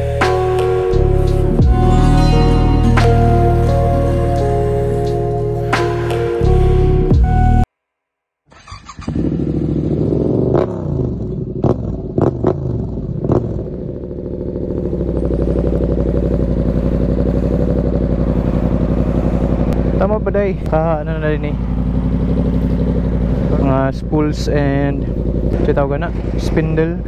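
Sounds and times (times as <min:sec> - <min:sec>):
motorcycle engine idling: 0:08.6 - 0:27.0.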